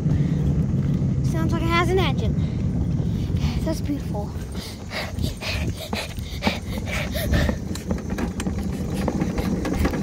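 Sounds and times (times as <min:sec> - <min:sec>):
wagon wheels rumbling on asphalt: 0:00.0 - 0:10.0
wagon body clicks and knocks: 0:05.0 - 0:10.0.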